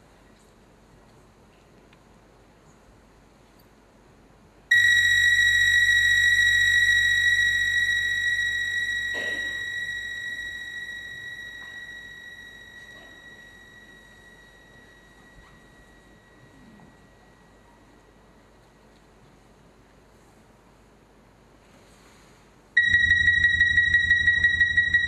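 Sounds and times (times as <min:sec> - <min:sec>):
high electronic tone: 0:04.7 - 0:15.4, 0:22.8 - 0:25.0
low hum: 0:04.7 - 0:17.5, 0:22.8 - 0:25.0.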